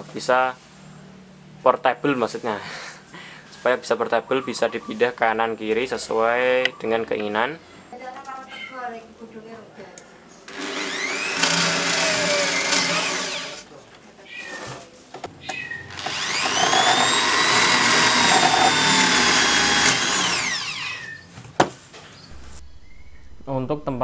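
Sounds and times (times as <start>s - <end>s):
electric drill whine boring wood: 10.5s - 13.6s, 15.9s - 21.2s.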